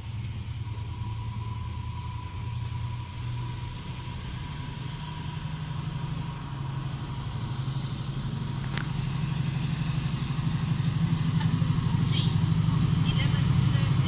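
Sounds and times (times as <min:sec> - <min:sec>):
diesel locomotive engine drumming: 0:00.0 - 0:14.0.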